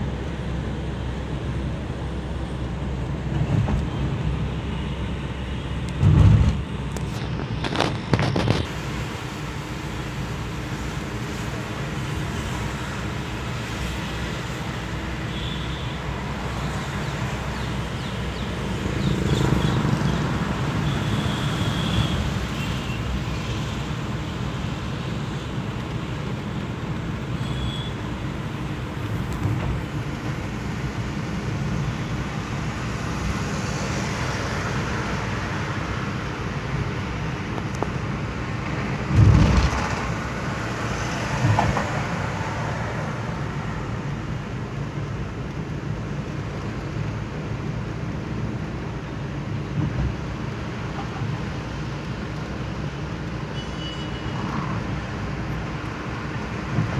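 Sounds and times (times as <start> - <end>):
road and engine rumble in car: 0.0 - 56.9
loud low thump: 6.0 - 6.7, 39.1 - 39.9.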